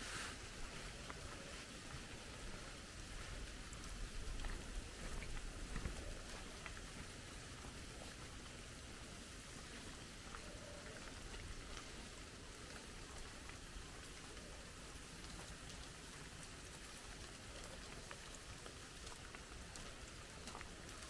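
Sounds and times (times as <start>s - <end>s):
faint steady hiss: 0.0s - 21.0s
raindrop ticks: 0.7s - 21.0s.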